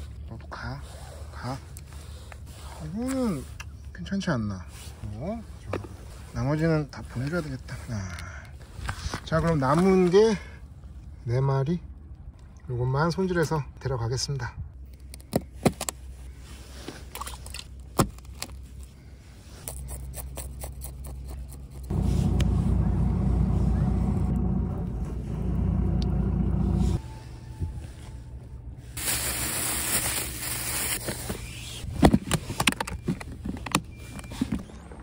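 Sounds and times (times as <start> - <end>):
loud low rumble: 21.9 - 29.0.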